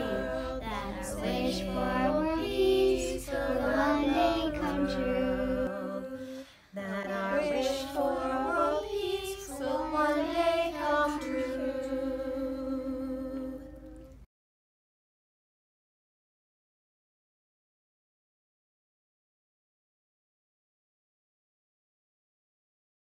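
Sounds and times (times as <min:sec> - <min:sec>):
children's choir singing: 0:00.0 - 0:14.2
woman singing: 0:00.0 - 0:14.2.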